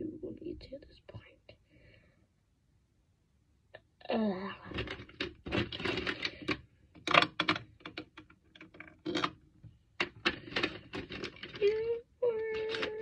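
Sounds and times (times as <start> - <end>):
plastic tubes clicking into organiser: 4.7 - 13.0.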